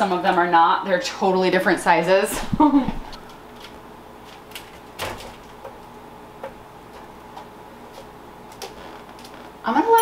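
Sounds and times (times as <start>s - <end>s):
background hum: 0.0s - 10.0s.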